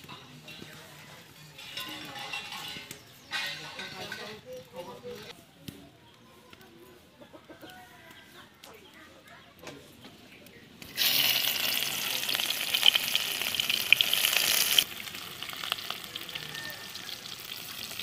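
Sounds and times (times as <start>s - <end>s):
onion sizzling in hot oil: 10.8s - 18.0s.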